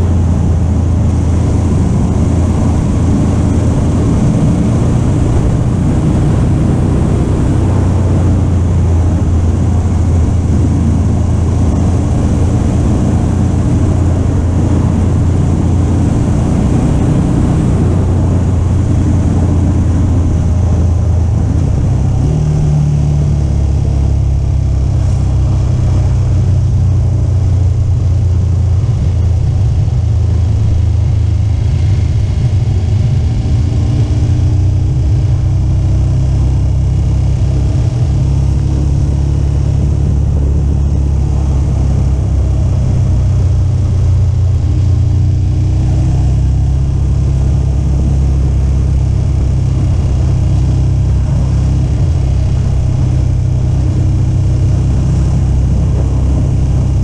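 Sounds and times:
motorcycle engine cruising: 0:00.0 - 0:57.0
wind rush: 0:00.0 - 0:57.0.

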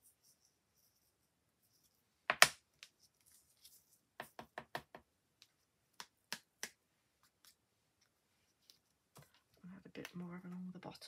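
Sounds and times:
knocks and taps on desk: 0:04.2 - 0:05.1.

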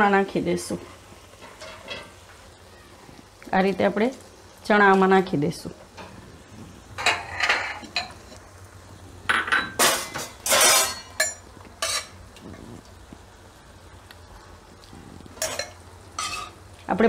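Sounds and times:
ladle clinking and scraping pot: 0:07.0 - 0:08.4, 0:09.3 - 0:12.2, 0:15.4 - 0:16.6.

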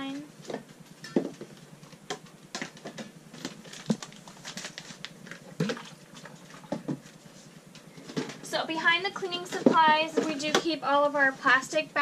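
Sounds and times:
plastic bottles knocking and clattering: 0:00.5 - 0:07.1.

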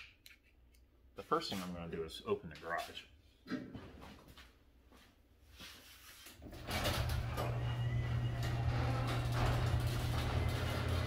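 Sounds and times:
garage door opener humming: 0:06.4 - 0:11.0.

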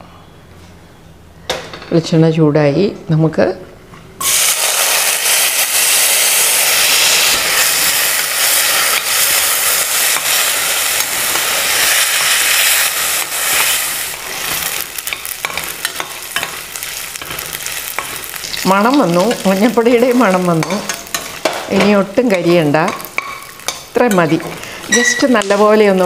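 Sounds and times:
coconut slices sizzling in hot oil: 0:04.2 - 0:26.0
steel spoon clicking and scraping pan: 0:15.1 - 0:18.6, 0:20.3 - 0:22.0, 0:22.8 - 0:25.6.

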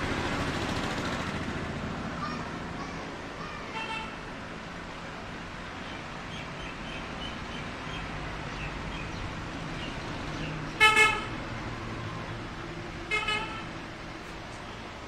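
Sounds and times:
road traffic hum: 0:00.0 - 0:15.0
vehicle horn honking: 0:10.8 - 0:11.3, 0:13.1 - 0:13.7.

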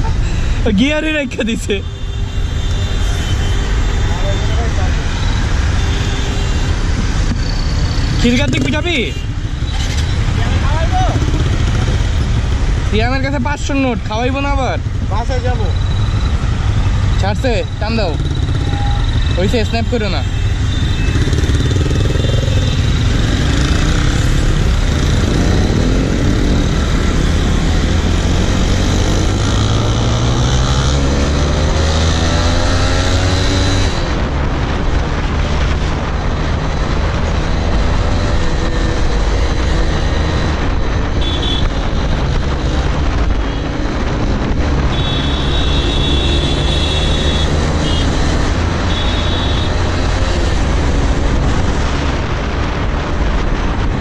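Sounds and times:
wind and road noise: 0:00.0 - 0:54.0
motorcycle engine accelerating: 0:20.9 - 0:34.2.

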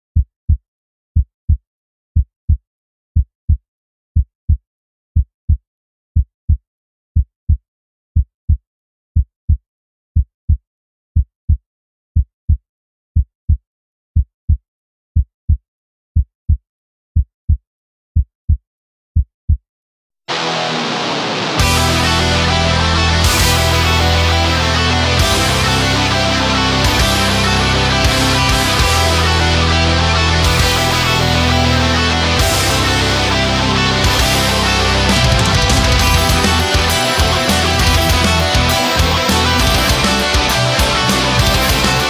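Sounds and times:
heavy rock music: 0:20.3 - 0:42.0.

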